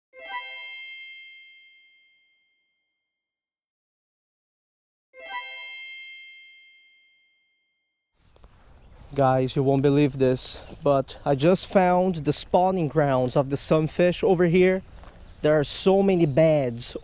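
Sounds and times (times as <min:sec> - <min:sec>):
bell-like chime ringing: 0:00.1 - 0:02.9, 0:05.2 - 0:08.0.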